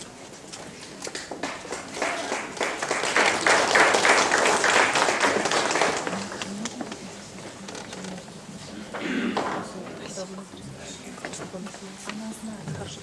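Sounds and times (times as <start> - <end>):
audience applauding: 1.1 - 6.8.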